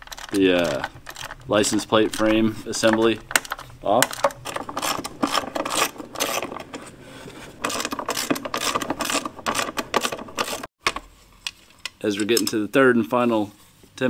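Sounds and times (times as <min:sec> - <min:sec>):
socket ratchet clicking: 0:07.6 - 0:10.6.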